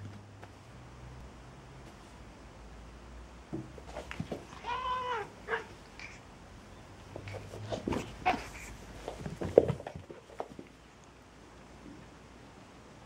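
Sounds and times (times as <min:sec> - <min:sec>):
rustling and thumps on blanket: 0:03.5 - 0:04.7, 0:07.1 - 0:10.8
cat cries: 0:04.6 - 0:05.7.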